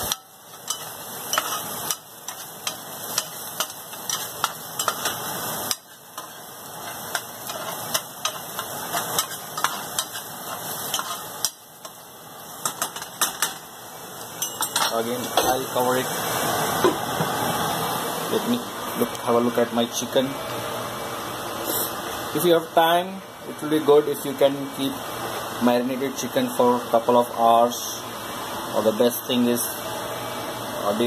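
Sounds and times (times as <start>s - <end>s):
onion sizzling in a pan: 0.0s - 31.0s
stirring clicks and scrapes on pan: 0.5s - 12.0s.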